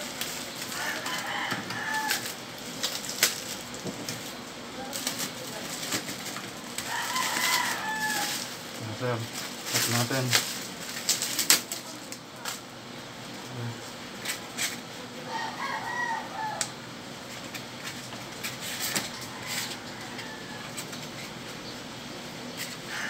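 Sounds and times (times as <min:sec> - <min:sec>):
chicken calling: 0:15.2 - 0:16.8.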